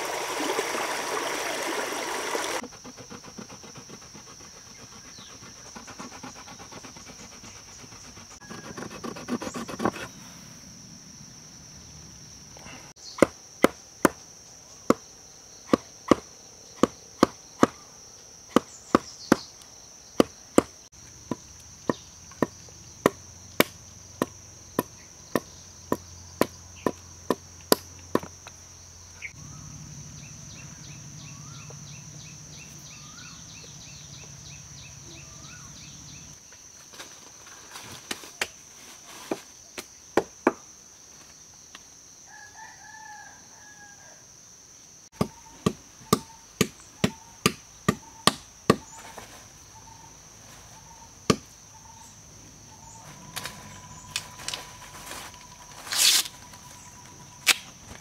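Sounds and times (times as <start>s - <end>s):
high insect drone: 0.0s - 58.0s
sharp knocks of stone on bamboo: 13.2s - 14.2s, 15.7s - 17.8s, 18.5s - 19.5s, 20.2s - 28.3s, 39.3s - 40.7s, 45.2s - 49.0s, 51.3s - 51.5s, 57.4s - 57.8s.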